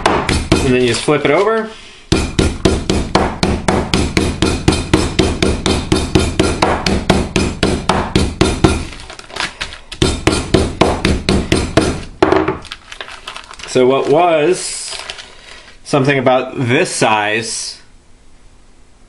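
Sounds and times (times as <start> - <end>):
meat mallet pounding: 0.0 - 1.2, 2.1 - 12.7.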